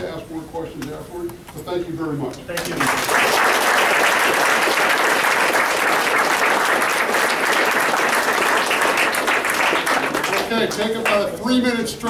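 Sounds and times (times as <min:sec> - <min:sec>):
crowd applauding: 0:02.5 - 0:11.4.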